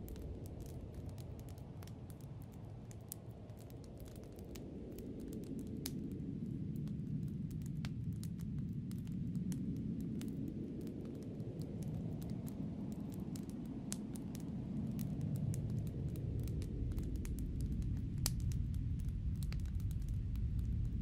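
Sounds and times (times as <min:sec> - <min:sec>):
sharp crackles: 0:00.0 - 0:21.0
rushing snowstorm wind: 0:08.7 - 0:21.0.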